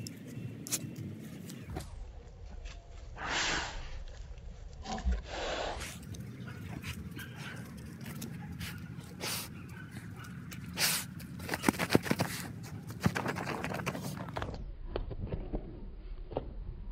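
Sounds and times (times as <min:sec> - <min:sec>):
dogs sniffing and snorting: 0:05.0 - 0:14.6.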